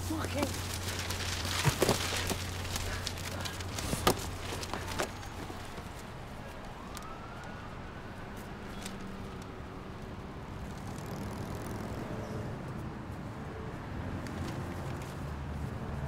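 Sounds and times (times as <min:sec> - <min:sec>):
low city rumble: 0:00.0 - 0:16.0
emergency siren wailing: 0:06.3 - 0:10.2.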